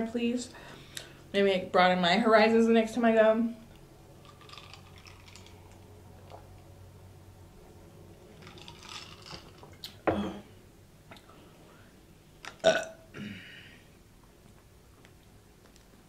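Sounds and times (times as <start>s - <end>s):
woman burping: 10.0s - 10.5s, 12.6s - 13.6s.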